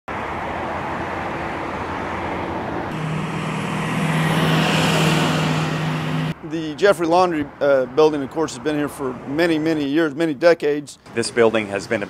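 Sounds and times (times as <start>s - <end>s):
road traffic hum: 0.1s - 12.0s
pickup truck driving past: 2.9s - 6.4s.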